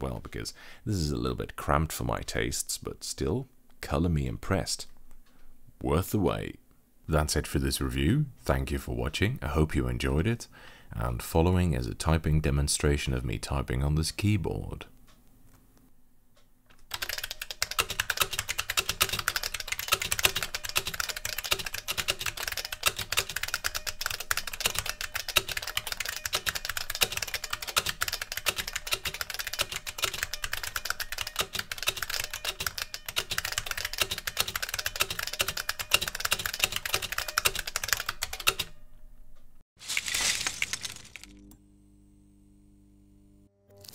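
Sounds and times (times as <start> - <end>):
fast keyboard typing: 16.9 - 38.8.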